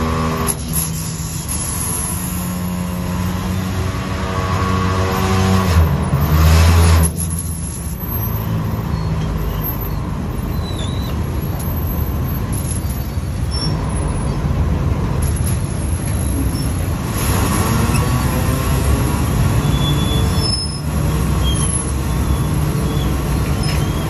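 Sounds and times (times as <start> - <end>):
boat engine rumbling: 18.0 - 24.0.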